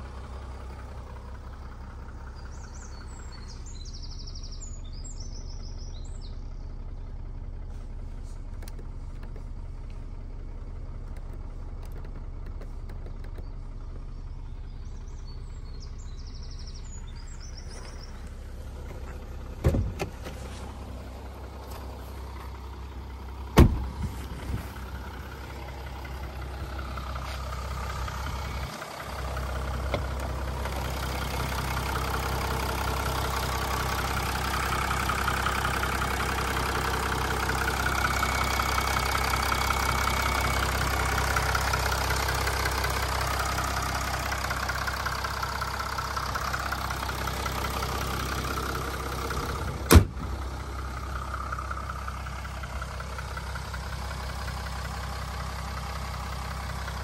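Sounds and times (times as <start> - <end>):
diesel engine idling: 0.0 - 57.0
car door slamming: 19.6 - 20.4, 23.5 - 24.6, 49.8 - 50.4
bonnet slamming shut: 49.9 - 50.3.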